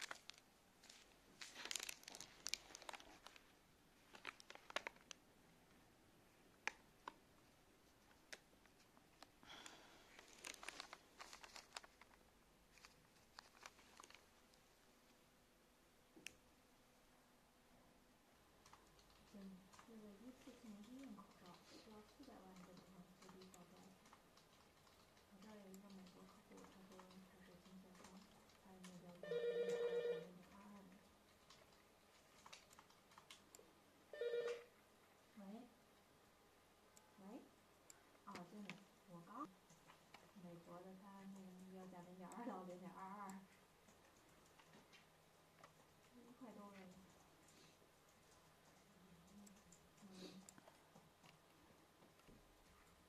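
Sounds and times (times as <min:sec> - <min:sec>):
plastic packaging crinkling: 0:00.0 - 0:05.2, 0:09.7 - 0:14.3
telephone ringing: 0:29.2 - 0:30.4, 0:34.1 - 0:34.7
faint clicks: 0:41.2 - 0:53.0.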